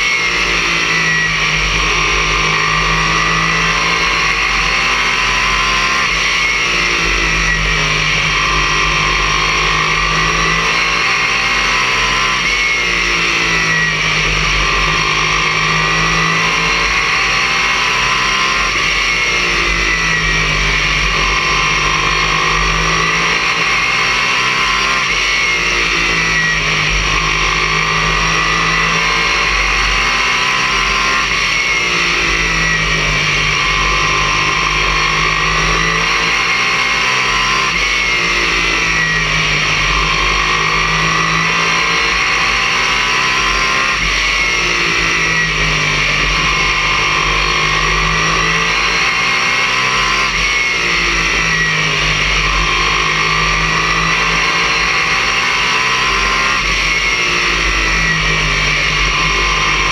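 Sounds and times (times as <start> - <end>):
race car engine: 0.0 - 59.9.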